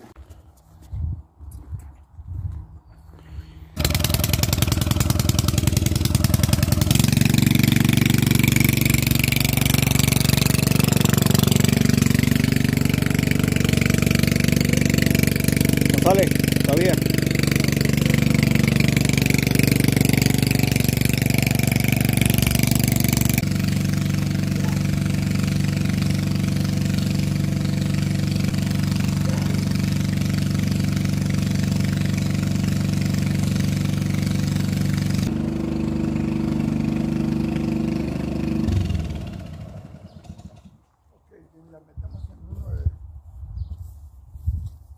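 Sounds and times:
engine running: 3.7 - 40.9.

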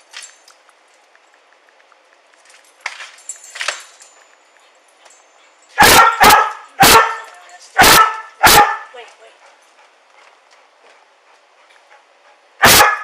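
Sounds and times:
faint metal clinking: 2.3 - 7.8
dog barking: 5.8 - 9.0, 12.6 - 13.0.

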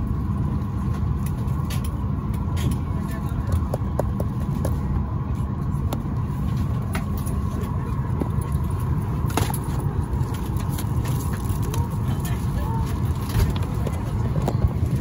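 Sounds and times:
airliner cabin rumble: 0.0 - 15.0.

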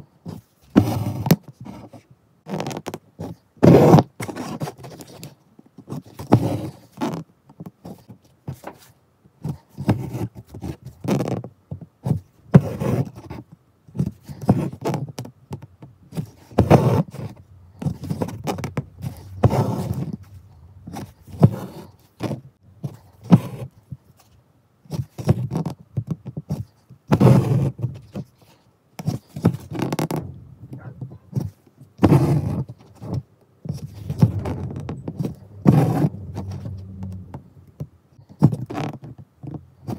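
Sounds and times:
fingers rubbing fabric: 16.1 - 23.6, 33.6 - 37.9.

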